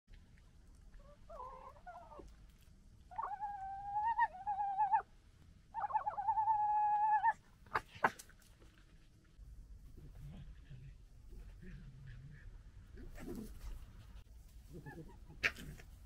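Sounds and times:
foxes crying and whining: 1.0 - 2.3, 3.1 - 5.1, 5.8 - 8.1.

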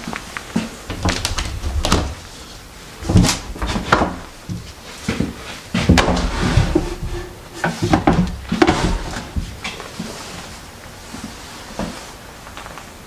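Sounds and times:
wooden cupboard doors knocking: 0.9 - 2.4, 3.0 - 9.6.

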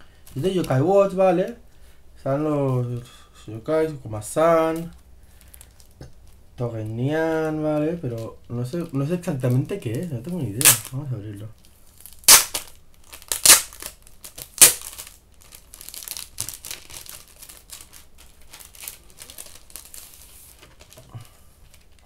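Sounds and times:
plastic wrapping crinkling: 4.6 - 22.0
plastic packaging ripping: 9.4 - 22.0.

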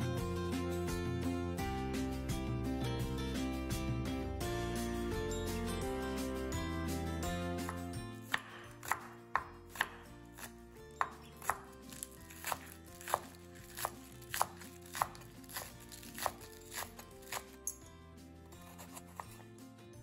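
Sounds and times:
background music: 0.0 - 20.0
knife chopping on wooden board: 7.6 - 17.8, 18.6 - 19.5.

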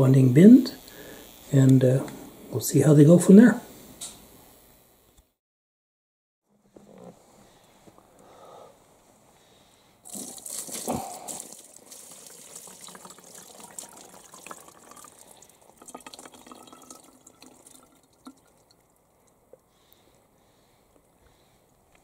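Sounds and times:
water splash: 10.1 - 18.5
water running into bottle: 10.1 - 19.6.

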